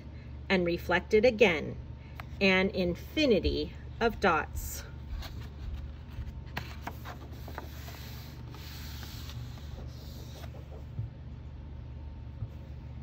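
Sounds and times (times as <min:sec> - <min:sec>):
book page rustling: 0:05.0 - 0:11.0.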